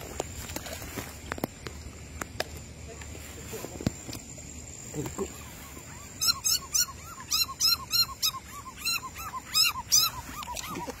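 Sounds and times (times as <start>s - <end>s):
frog squeaky calls: 5.2s - 11.0s.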